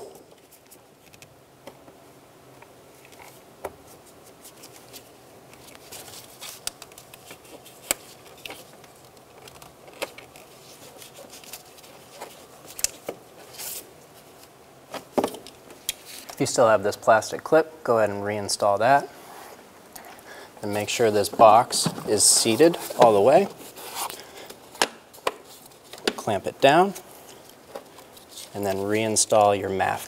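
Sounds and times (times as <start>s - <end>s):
rustling of rubber and gloves: 2.8s - 16.4s, 18.6s - 30.0s.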